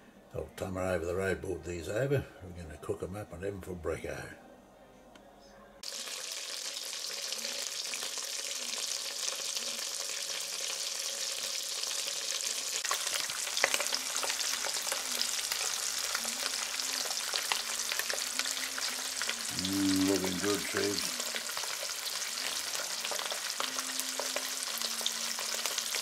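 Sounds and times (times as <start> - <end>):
butter sizzling in frying pan: 5.8 - 26.0
sharp frying pops: 5.8 - 26.0.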